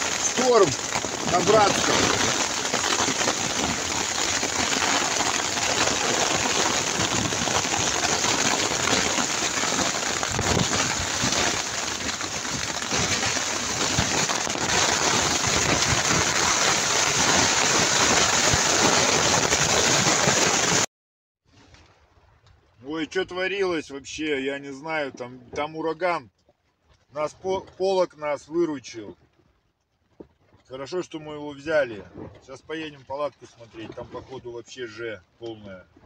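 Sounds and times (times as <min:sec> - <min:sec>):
rain drumming on plastic tarp: 0:00.0 - 0:20.9.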